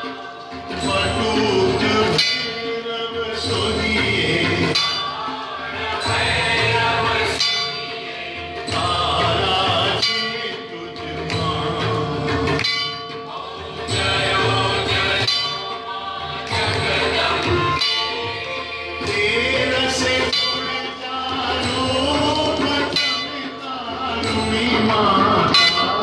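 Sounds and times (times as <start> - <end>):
group singing a hymn: 0.0 - 26.0
metal bell ringing: 0.0 - 26.0.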